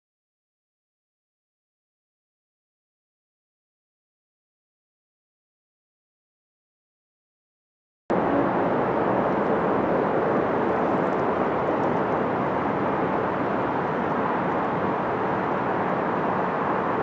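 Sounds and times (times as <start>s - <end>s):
distant vehicle rumble: 8.1s - 17.0s.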